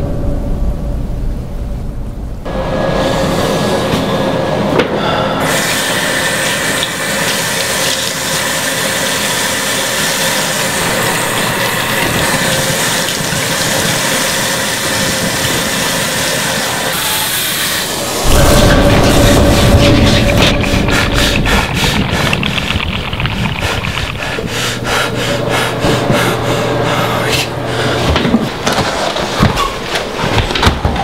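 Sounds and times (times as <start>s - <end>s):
deep rumbling: 0.0s - 5.4s, 17.8s - 29.6s
water running from faucet into sink: 5.4s - 18.2s
hands washing under water: 5.5s - 16.9s, 17.9s - 27.2s.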